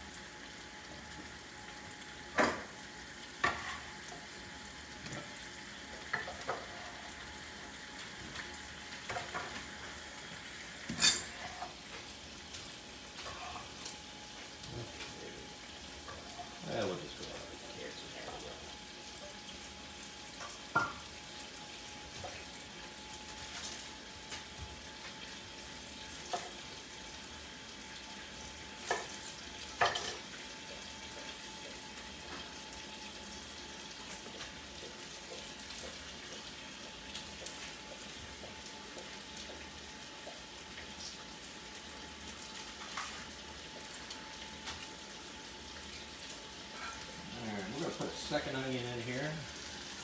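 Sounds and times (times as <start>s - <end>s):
meat sizzling in a pan: 0.0s - 50.0s.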